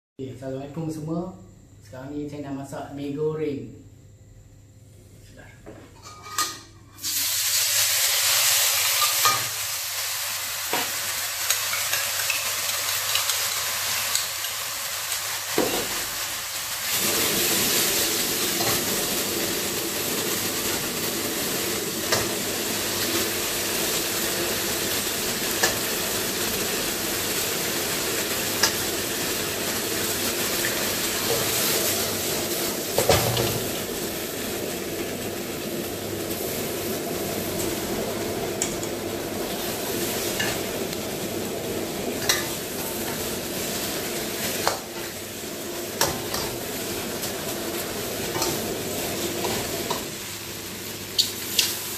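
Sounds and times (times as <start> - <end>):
sauce sizzling in hot oil: 6.6 - 51.9.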